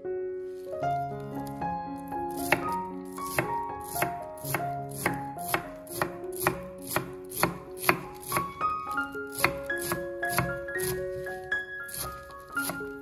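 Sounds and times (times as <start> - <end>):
cleaver chopping on wooden board: 2.3 - 8.6, 9.3 - 11.3, 11.9 - 12.9.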